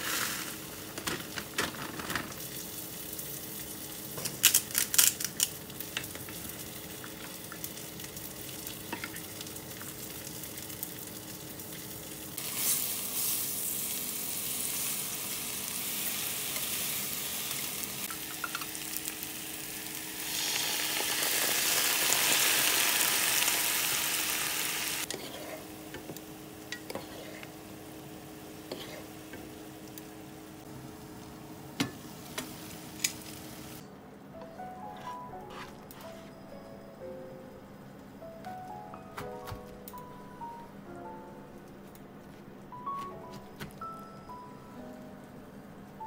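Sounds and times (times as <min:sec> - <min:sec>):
cabbage sizzling in oil: 0:00.0 - 0:01.0, 0:02.3 - 0:25.1.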